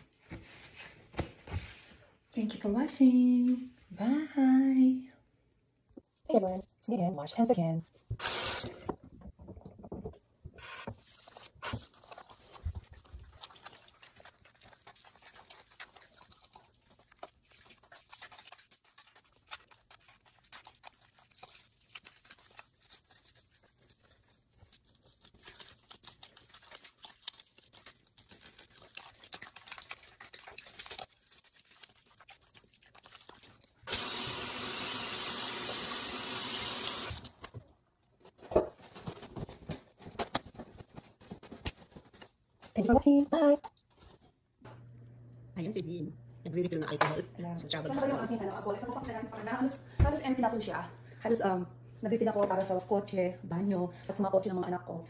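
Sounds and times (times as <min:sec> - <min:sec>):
hands rubbing soap: 0:11.0 - 0:33.9
tap water running into sink: 0:33.9 - 0:37.3.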